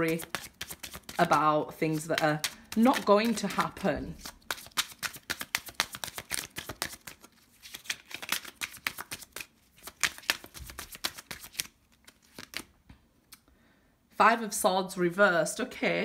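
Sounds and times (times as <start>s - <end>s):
cards being shuffled: 0.0s - 12.7s.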